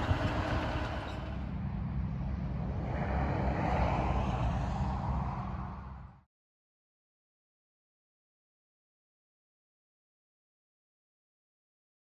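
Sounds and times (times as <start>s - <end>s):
tractor engine under load: 0.0s - 1.7s.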